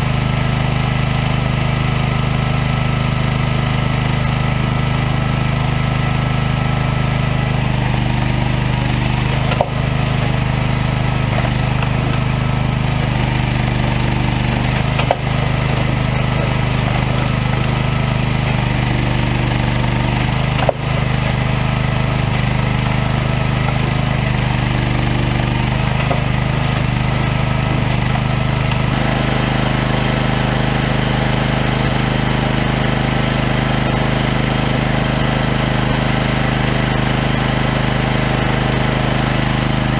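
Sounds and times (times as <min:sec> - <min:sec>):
machine engine running: 0:00.0 - 0:39.9
sharp knocks: 0:09.4 - 0:10.4, 0:11.0 - 0:19.2, 0:20.1 - 0:25.1.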